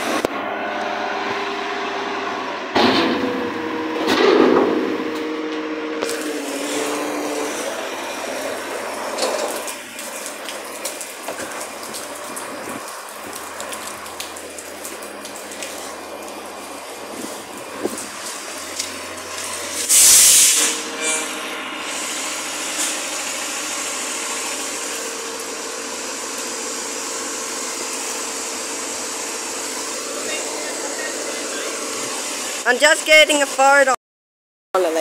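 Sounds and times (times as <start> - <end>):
garbage truck engine drone: 0.0 - 34.0
rain hissing: 6.0 - 33.7.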